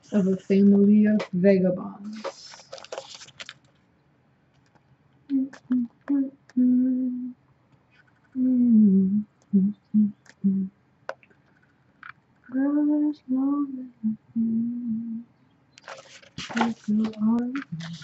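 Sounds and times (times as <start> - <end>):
woman humming: 5.3 - 7.4, 8.4 - 10.7, 12.5 - 15.2, 16.6 - 18.0.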